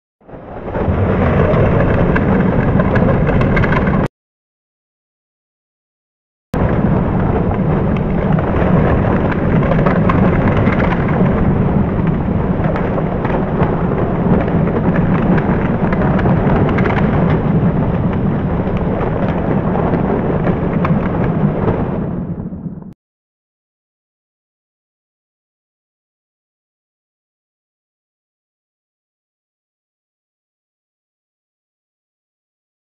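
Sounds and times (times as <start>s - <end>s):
fire roaring: 0.2s - 4.1s, 6.6s - 23.0s
fire crackling and popping: 0.3s - 4.1s, 6.6s - 22.9s.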